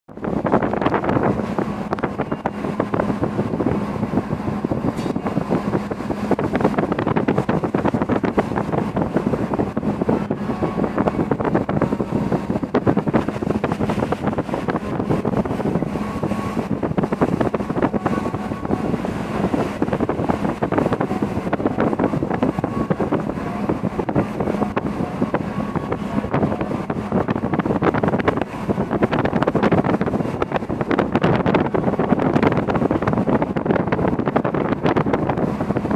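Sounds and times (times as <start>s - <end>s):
sea water rushing along a hull: 0.0s - 35.9s
steady low hum: 0.1s - 35.9s
wind buffeting the microphone: 0.1s - 35.9s.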